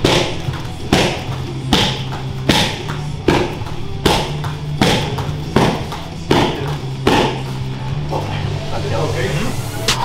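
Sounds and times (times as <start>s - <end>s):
kicks smacking pads: 0.0s - 7.5s.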